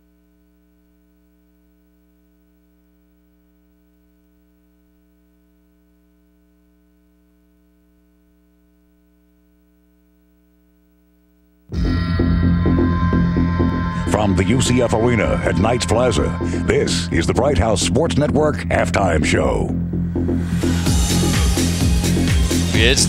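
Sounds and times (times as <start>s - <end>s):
faint mains hum: 0.0s - 11.7s.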